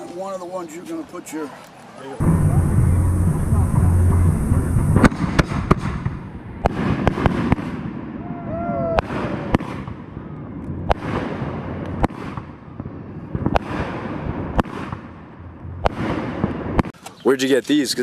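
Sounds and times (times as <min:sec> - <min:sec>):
steady low rumble: 0:02.2 - 0:07.2, 0:10.1 - 0:16.8
firework bangs and cracks: 0:02.2 - 0:17.0.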